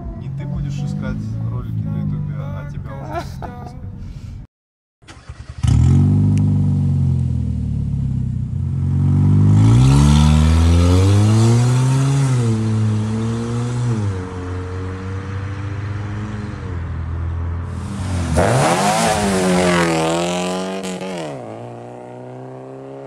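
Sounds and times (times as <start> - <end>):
car engine accelerating: 0.0 - 3.0, 5.1 - 23.0.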